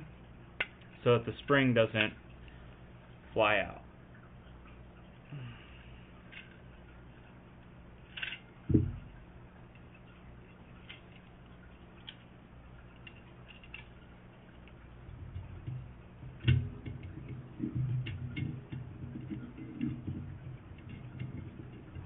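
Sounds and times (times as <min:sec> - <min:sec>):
small metal clicks and knocks: 0:08.0 - 0:10.2, 0:10.8 - 0:22.0
dull thump: 0:08.7 - 0:09.1.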